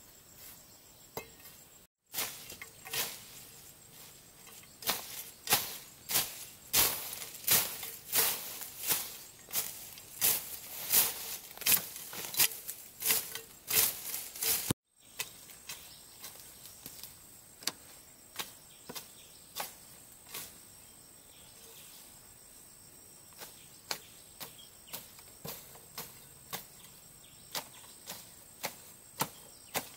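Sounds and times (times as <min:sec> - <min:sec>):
high insect whine: 0:00.0 - 0:29.9
sharp evenly paced knocks: 0:04.4 - 0:15.4.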